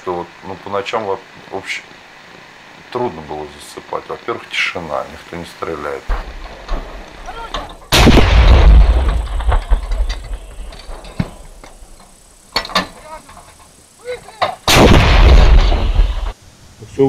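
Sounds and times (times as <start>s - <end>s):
artillery gun firing: 7.9s - 11.9s, 14.6s - 16.4s.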